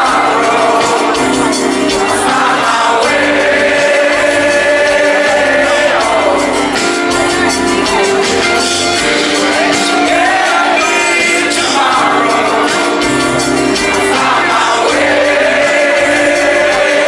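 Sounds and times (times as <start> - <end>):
live band playing: 0.0 - 17.0
man singing lead vocal: 0.0 - 17.0
strummed acoustic guitar: 0.0 - 17.0.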